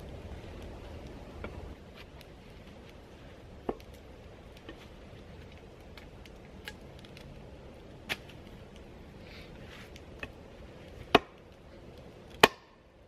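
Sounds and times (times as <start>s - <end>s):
axe chopping wood: 11.0s - 11.4s, 12.3s - 12.8s.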